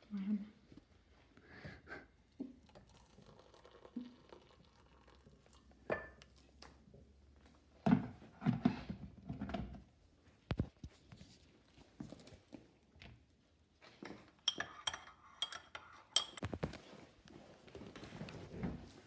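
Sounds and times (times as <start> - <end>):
water pouring into mugs: 2.4 - 6.5
kettle and mugs clattering: 2.7 - 6.2.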